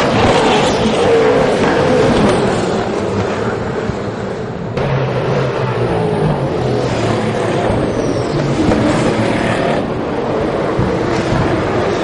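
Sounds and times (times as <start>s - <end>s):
race car engines: 0.0s - 12.0s.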